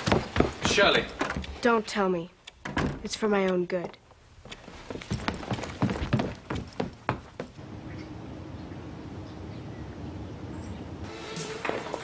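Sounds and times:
low background hum: 6.6 - 11.1.

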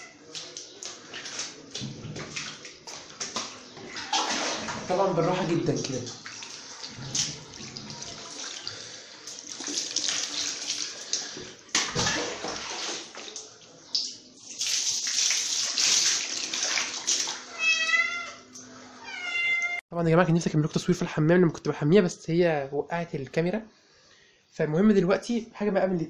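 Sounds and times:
water splashing in a basin: 0.3 - 17.6
sharp splash or knock: 3.3 - 4.8, 11.7 - 13.2
water pouring from a cup: 6.0 - 11.6.

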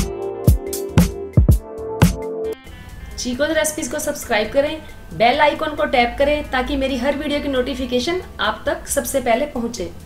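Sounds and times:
music with deep drum beat: 0.0 - 2.3.

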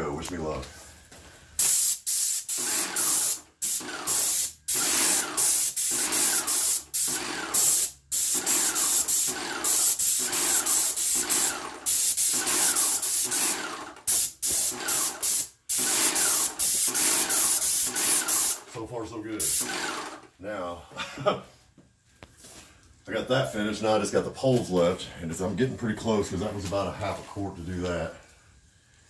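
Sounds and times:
paint sprayer gun hissing: 1.6 - 18.7, 19.4 - 20.2.

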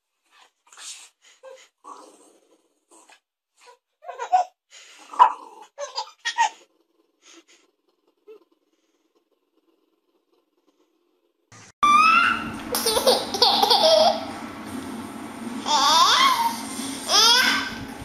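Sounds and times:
baby giggling: 4.0 - 4.6, 5.8 - 6.6, 12.8 - 14.3.

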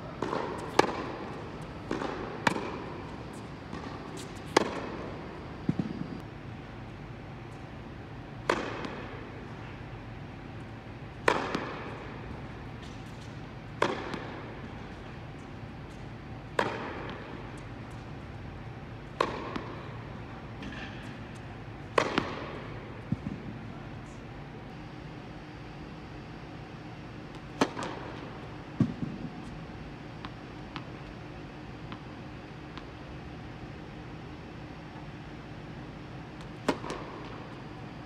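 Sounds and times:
tennis balls hit with rackets: 0.0 - 6.2, 8.3 - 9.9, 11.1 - 15.1, 15.9 - 18.1, 19.1 - 23.6, 27.3 - 31.0, 36.4 - 37.8.

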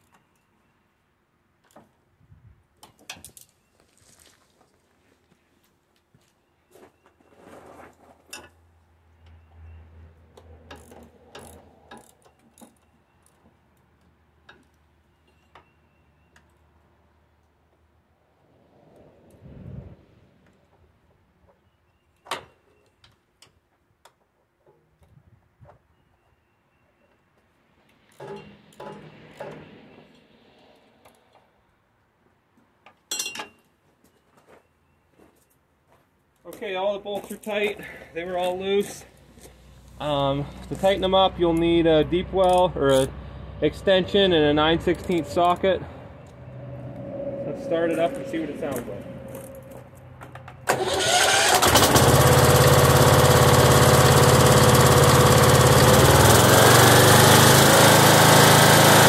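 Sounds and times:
tools clinking: 33.0 - 33.7.

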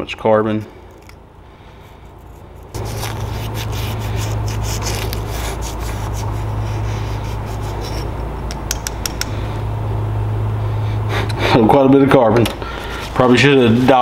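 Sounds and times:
steady low hum: 0.0 - 14.0
towel scrubbing metal: 2.1 - 8.2.

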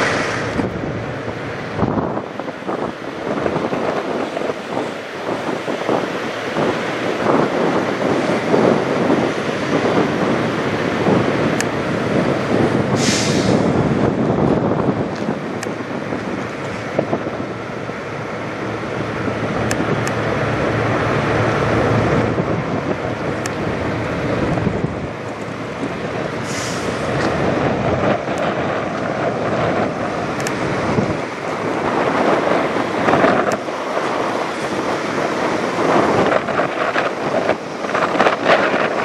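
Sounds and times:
brief hiss: 0.0 - 0.6, 13.0 - 13.6
diesel engine idling: 0.0 - 38.4.

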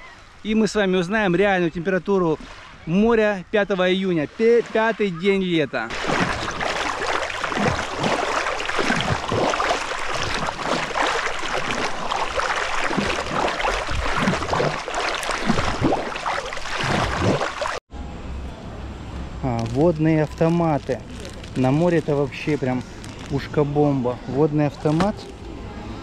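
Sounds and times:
water splashing from kicking legs: 5.9 - 17.8.

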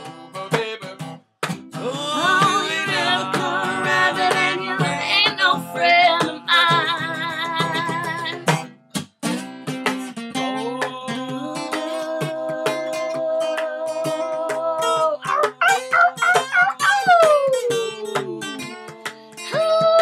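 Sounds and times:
strummed acoustic guitar: 0.0 - 20.0
people singing: 1.8 - 8.4, 10.4 - 18.8.

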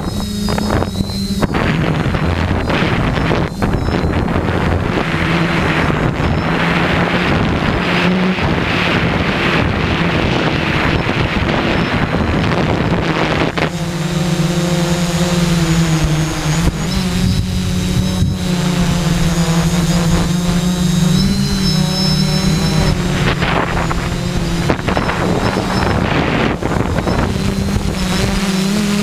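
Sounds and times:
drone motors humming: 0.0 - 29.0
wind buffeting microphone: 0.0 - 29.0.

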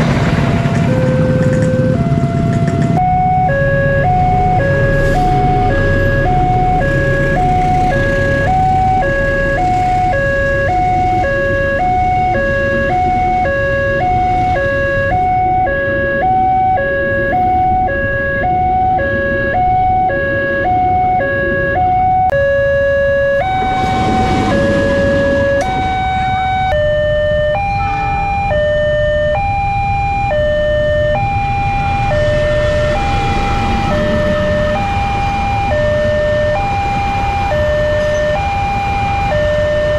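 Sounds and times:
train rumbling past: 0.0 - 12.0, 23.0 - 26.8, 32.0 - 36.4
two-tone crossing alarm: 0.0 - 39.9.

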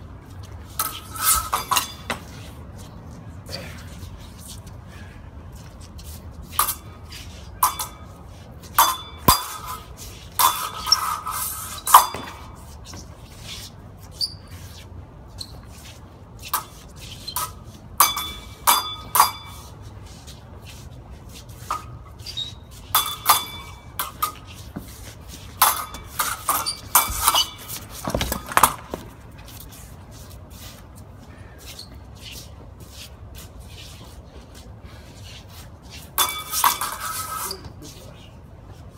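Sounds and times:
sword blades clashing: 7.6 - 12.4, 17.4 - 19.7, 22.9 - 24.5, 25.5 - 28.8.

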